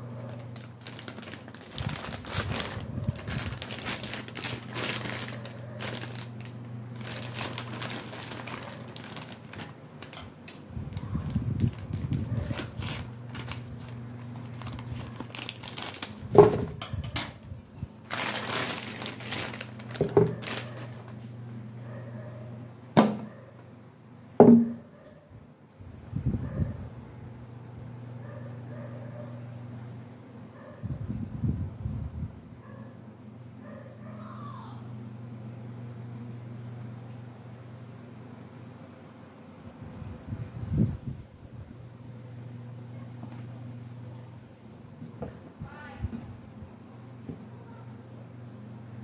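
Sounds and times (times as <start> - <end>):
plastic bag crinkling: 0.0 - 16.7, 18.0 - 21.2
steady low hum: 0.0 - 49.0
plastic tank knocking: 24.4 - 24.8.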